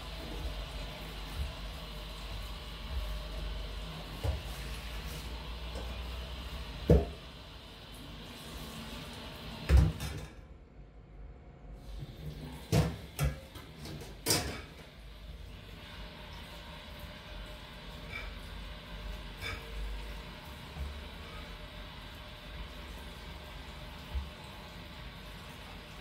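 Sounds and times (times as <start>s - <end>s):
low hum: 10.3s - 12.5s.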